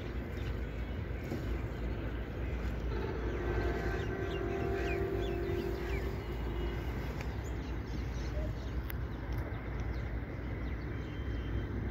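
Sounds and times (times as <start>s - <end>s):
steady droning tone: 0.0s - 9.0s
steady low rumble: 0.0s - 11.0s.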